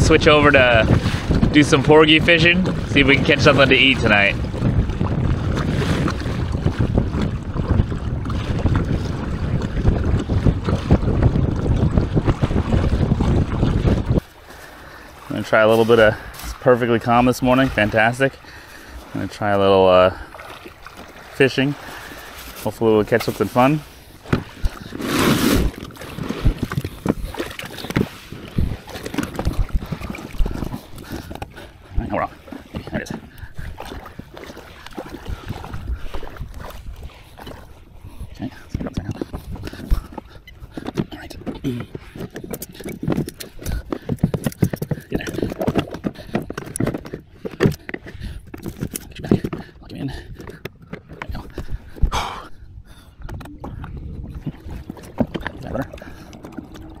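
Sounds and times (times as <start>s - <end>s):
water sloshing: 0.0s - 57.0s
waves slapping kayak hull: 0.0s - 57.0s
wind buffeting microphone: 0.0s - 57.0s
knocks on kayak hull: 24.2s - 24.8s.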